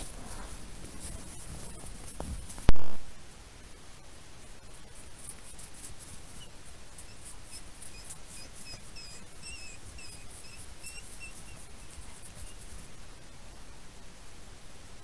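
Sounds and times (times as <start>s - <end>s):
steady hiss: 0.0s - 15.0s
small animal chirping: 5.1s - 12.8s.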